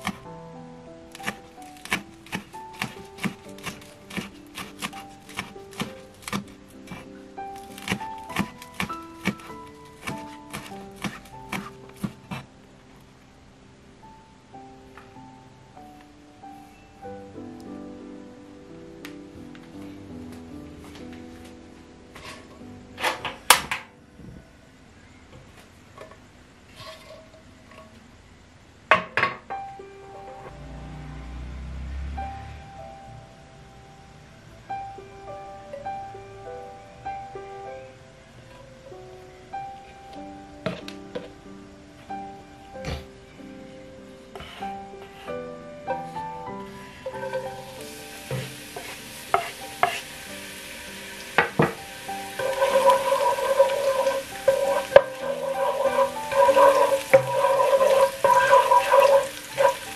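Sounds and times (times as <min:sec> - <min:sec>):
onion sizzling in oil: 0:46.7 - 0:59.9.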